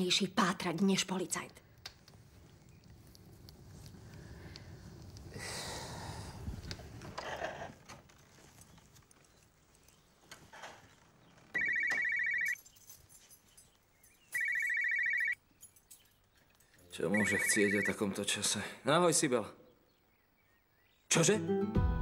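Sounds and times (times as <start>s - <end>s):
mobile phone ringtone: 11.6s - 12.6s, 14.4s - 15.4s, 17.2s - 18.0s.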